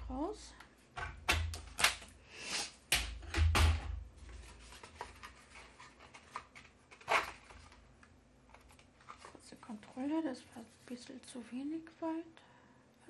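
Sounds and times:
paper rustling: 4.2 - 7.8, 8.5 - 11.1.

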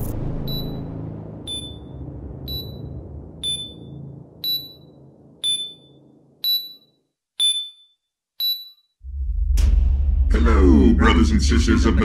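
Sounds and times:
low droning hum: 0.0 - 6.4, 9.0 - 12.0
short high timer beeps: 1.5 - 1.9, 3.4 - 9.0.

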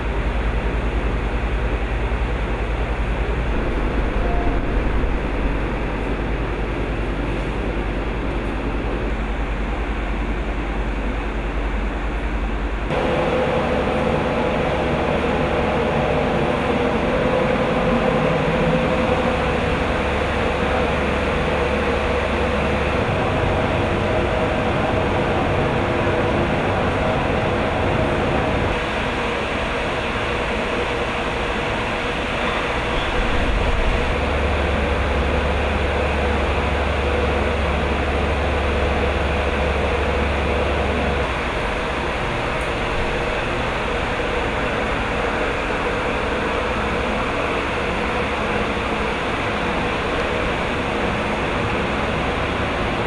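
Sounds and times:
ventilation fans humming: 0.0 - 53.0
faint held tone: 3.5 - 6.4.

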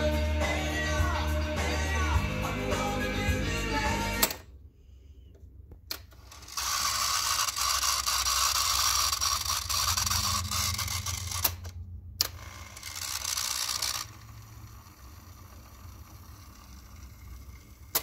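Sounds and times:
tape spooling whir: 6.2 - 18.0.

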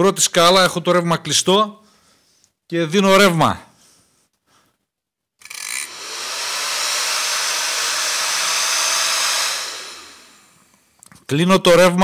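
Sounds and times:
hair dryer fan running: 5.8 - 10.7.

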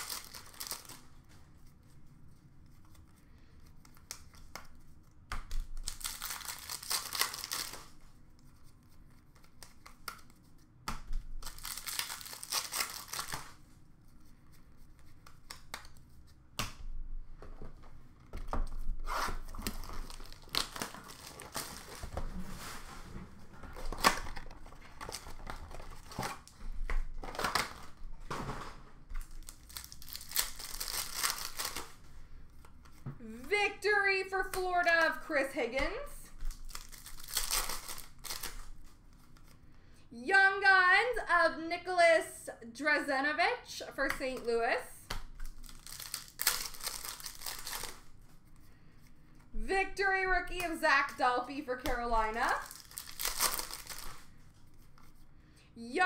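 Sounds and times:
wrappers tearing and crinkling: 0.0 - 1.1, 5.6 - 8.0, 11.4 - 13.6, 19.0 - 22.7, 23.7 - 26.6, 29.2 - 32.0, 36.5 - 39.5, 45.4 - 48.1, 52.3 - 55.0
cards shuffling: 2.7 - 16.4, 29.2 - 33.5, 36.4 - 39.6, 45.3 - 48.7, 51.8 - 55.2.

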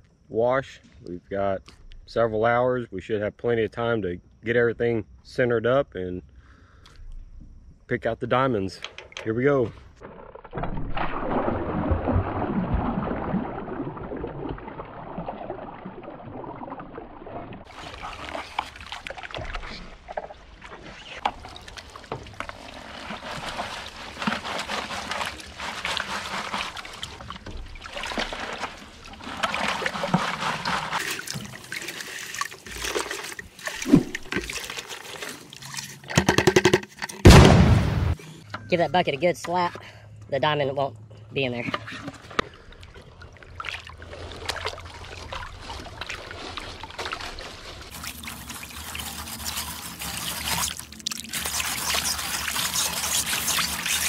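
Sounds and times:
gravel splashing and rattling: 10.0 - 36.1, 42.7 - 54.0
water pouring from bucket: 10.1 - 36.2, 42.0 - 54.0.

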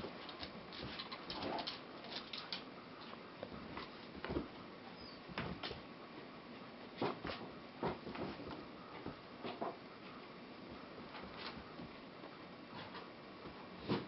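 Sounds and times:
dog claws clicking on brick floor: 0.2 - 3.1.

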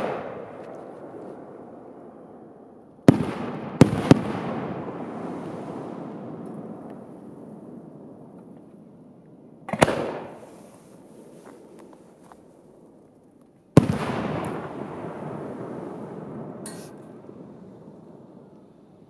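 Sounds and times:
fireworks bang with rumbling echo: 0.0 - 2.1, 3.0 - 8.9, 9.6 - 10.8, 13.8 - 18.5.

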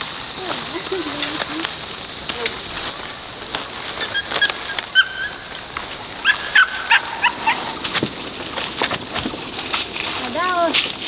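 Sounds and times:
scattered clicks: 0.3 - 10.6
short pitched bird calls: 4.0 - 5.6.

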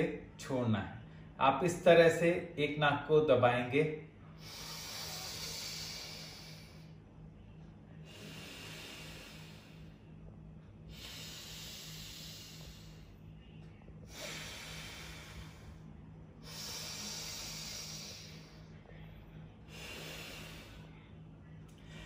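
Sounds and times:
deep breathing through the nose: 4.3 - 7.0, 8.0 - 10.2, 10.8 - 13.4, 14.0 - 22.0.

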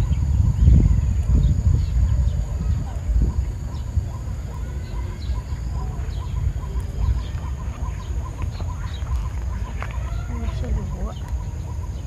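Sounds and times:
faint bird chirps: 0.0 - 12.0
low rumble: 0.0 - 12.0.

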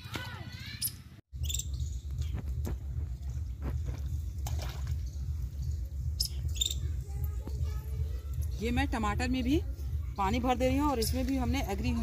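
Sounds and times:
pulsing low drone: 1.6 - 12.0
water trickling along furrow: 1.8 - 6.4.

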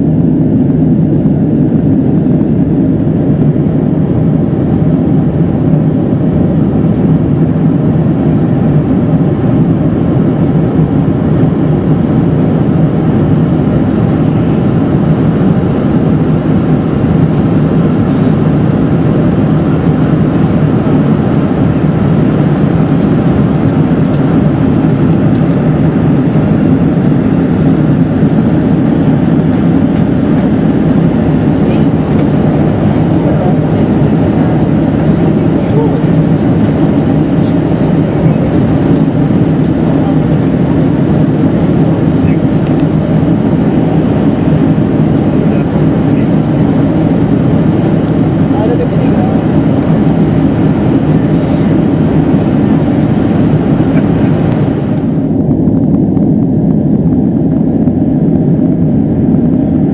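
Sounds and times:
airplane cabin roar: 0.0 - 59.9
faint high whine: 0.0 - 59.9.

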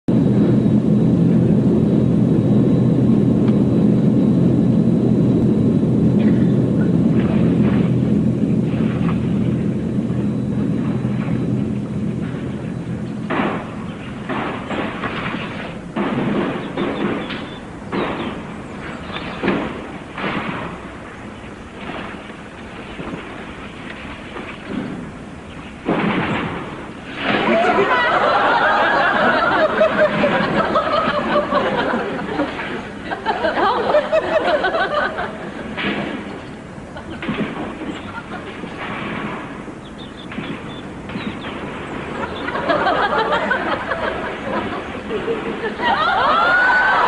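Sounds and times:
aircraft engines droning: 0.1 - 47.0
rumbling explosions: 0.1 - 47.0
crackling gunfire: 13.2 - 29.1, 35.7 - 45.4.

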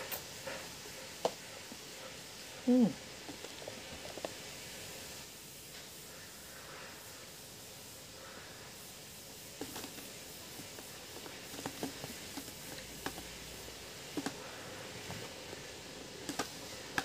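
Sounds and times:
steady hiss: 0.0 - 17.0
crisps crunching while chewing: 3.3 - 4.5.

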